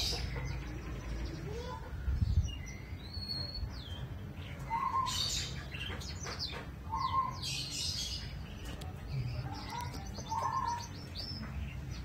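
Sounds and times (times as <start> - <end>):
birds chirping and calling: 0.0 - 12.0.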